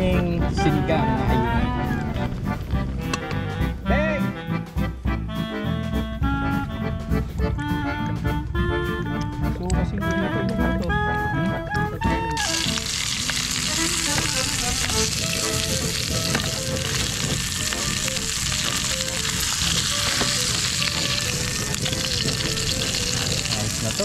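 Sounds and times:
background music: 0.0s - 24.0s
pork sizzling in oil: 12.4s - 24.0s.

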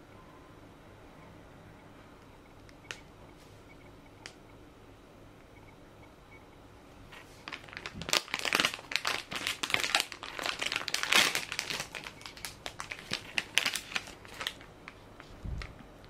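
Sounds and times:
plastic candy packet crinkling: 7.4s - 15.0s.

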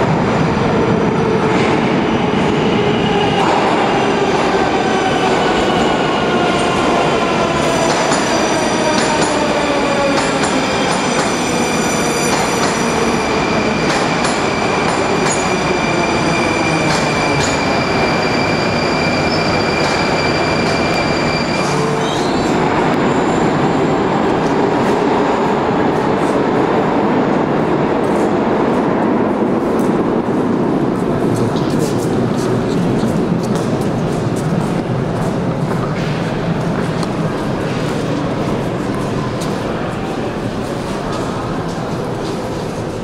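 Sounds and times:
train wheels rumbling on rail: 0.0s - 43.0s
steady high squeal: 7.6s - 23.8s.

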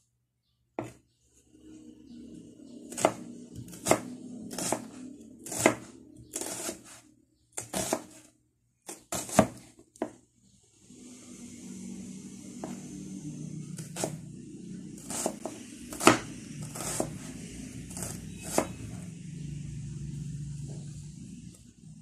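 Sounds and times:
knife striking wooden cutting board: 0.8s - 1.0s.

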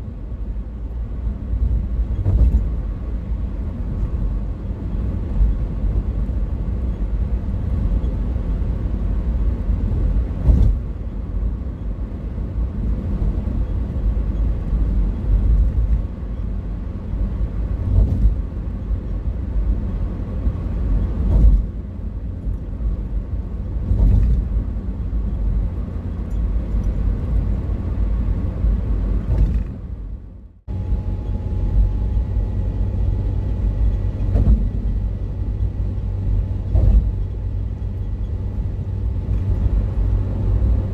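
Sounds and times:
car cabin road rumble: 0.0s - 40.9s
short thumps: 34.2s - 35.0s.

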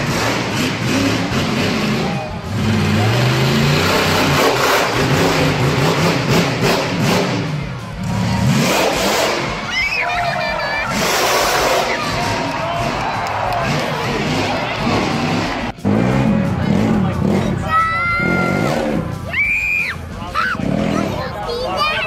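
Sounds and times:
monster truck engine revving: 0.0s - 21.9s.

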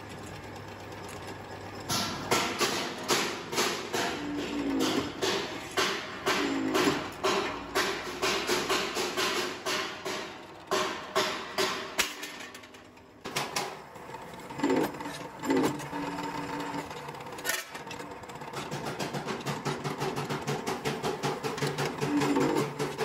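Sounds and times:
heavy knocks: 2.2s - 12.0s.

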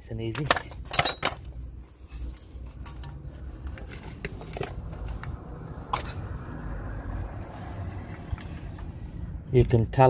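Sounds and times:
clicks and rustles of metal and rubber: 0.1s - 6.2s.

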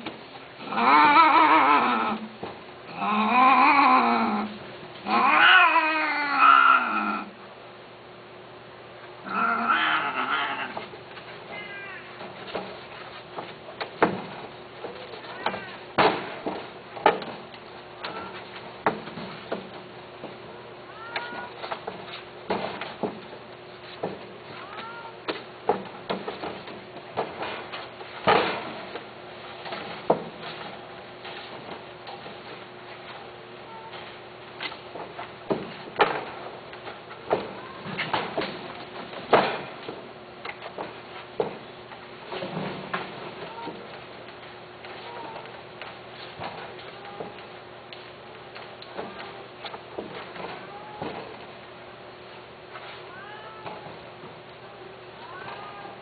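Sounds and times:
cat meowing: 3.0s - 7.3s, 11.5s - 12.2s, 20.8s - 21.6s, 24.6s - 25.3s, 53.1s - 53.8s.

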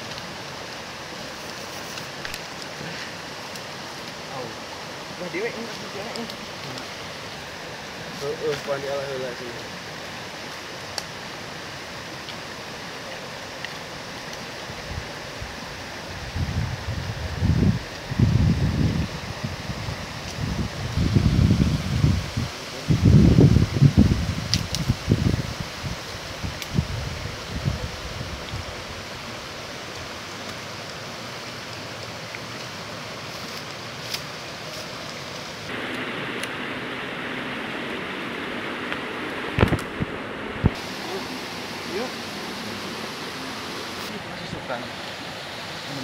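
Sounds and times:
river flowing over rocks: 0.0s - 16.2s, 28.8s - 46.0s
wind buffeting microphone: 14.7s - 29.1s, 35.7s - 42.9s.

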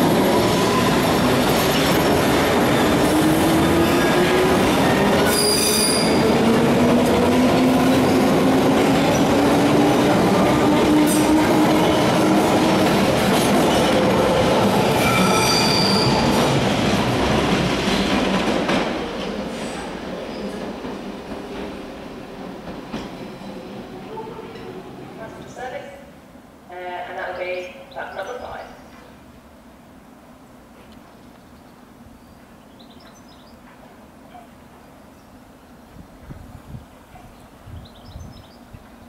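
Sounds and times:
train wheels rumbling on rail: 0.0s - 25.3s
high wheel squeals: 5.2s - 6.3s, 15.0s - 16.4s.

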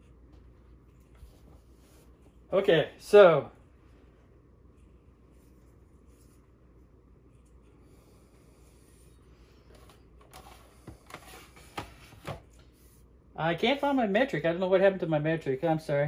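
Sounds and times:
quiet room hum: 0.0s - 16.0s.

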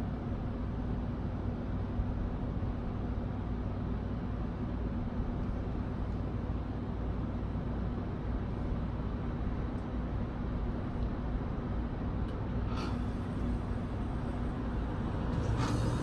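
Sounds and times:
constant hum: 0.0s - 16.0s
low rumble: 13.0s - 16.0s.

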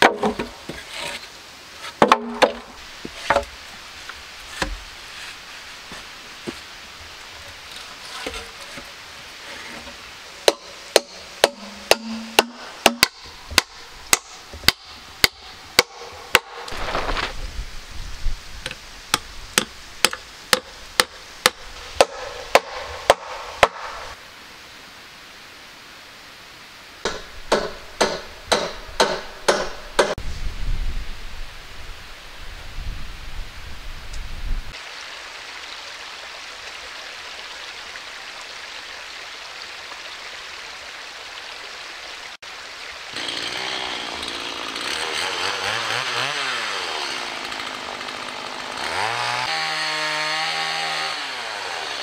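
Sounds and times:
hand tool striking wood: 0.0s - 1.2s, 1.9s - 3.5s, 4.5s - 6.6s, 10.4s - 16.8s, 18.7s - 24.1s, 27.1s - 30.2s.

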